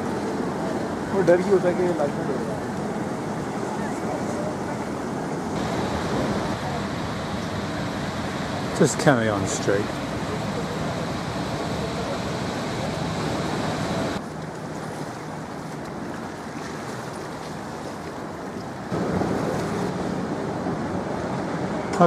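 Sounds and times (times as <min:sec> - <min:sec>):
outdoor background hiss: 0:00.0 - 0:14.2.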